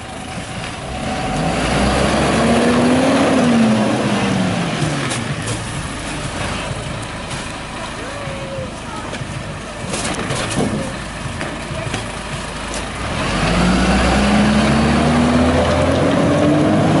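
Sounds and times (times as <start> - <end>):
truck pulling away: 0.0 - 17.0
knocks and rattles from truck body: 9.2 - 12.2.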